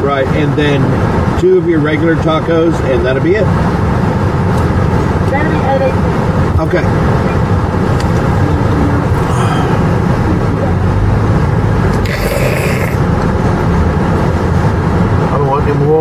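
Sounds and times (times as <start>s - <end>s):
car engine rumble from inside: 0.0s - 16.0s.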